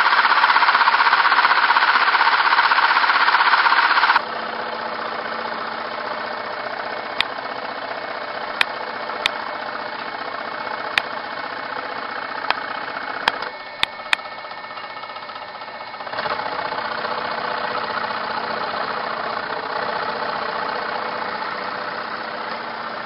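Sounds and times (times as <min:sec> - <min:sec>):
sharp ticks: 0:00.0 - 0:04.2
scroll saw buzzing: 0:00.0 - 0:23.0.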